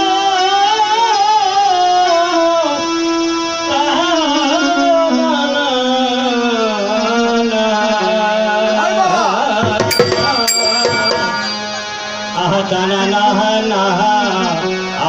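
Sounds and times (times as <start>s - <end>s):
drums: 9.0s - 12.3s
sharp ringing strikes: 9.6s - 12.4s
held melody line: 9.6s - 12.6s.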